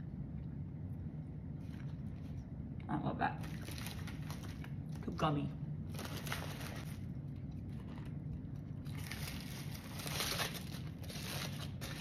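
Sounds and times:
paper wrapper crinkling: 3.4 - 5.1, 5.9 - 12.0.

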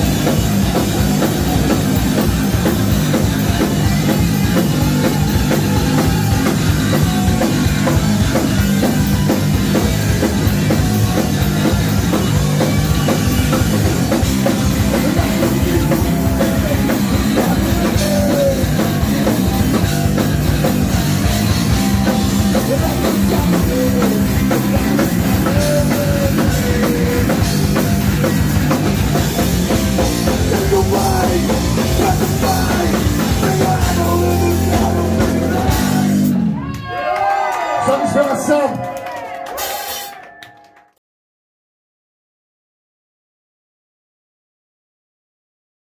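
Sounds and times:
drum kit: 0.0 - 36.6, 39.5 - 40.4
punk rock band playing: 0.0 - 36.8
electric guitars: 0.0 - 37.1
person singing: 3.9 - 8.4, 10.4 - 36.4.

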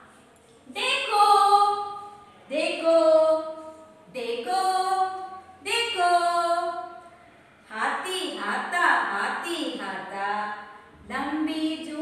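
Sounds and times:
woman singing unaccompanied: 0.7 - 6.9.

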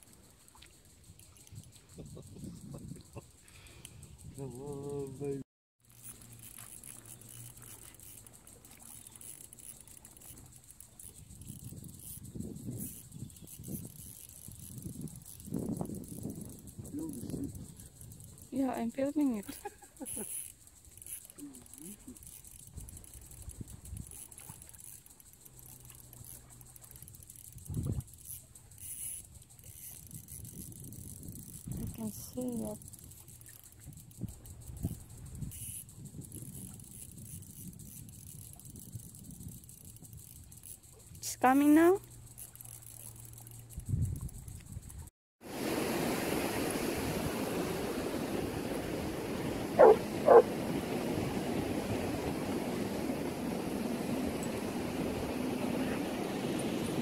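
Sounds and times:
fishing reel ticking: 0.0 - 45.1
dog barks: 49.8 - 50.5.

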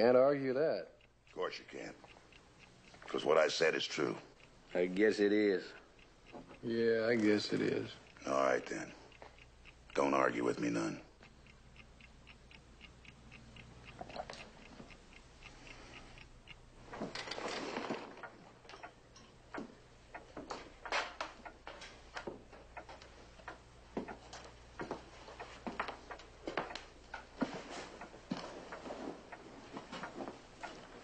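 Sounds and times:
clock ticking: 0.0 - 31.0
irregular knocks and clicks: 11.2 - 31.0.

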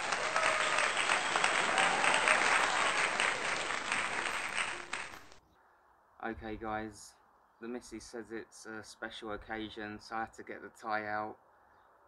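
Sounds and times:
crowd applauding: 0.0 - 5.4.

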